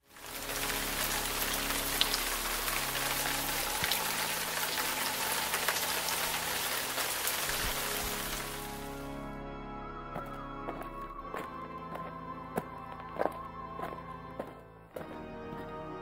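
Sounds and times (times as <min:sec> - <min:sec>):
steady rain hiss: 0:00.0 - 0:09.1.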